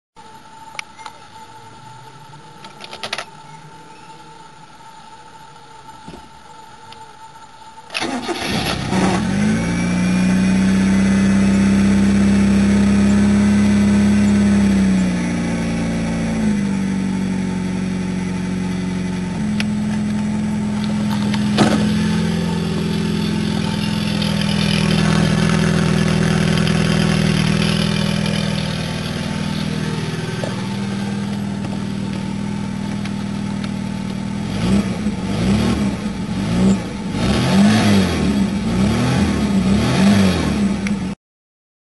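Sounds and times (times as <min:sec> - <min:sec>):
car engine idling: 0:07.6 - 0:37.6
engine revving: 0:08.0 - 0:41.2.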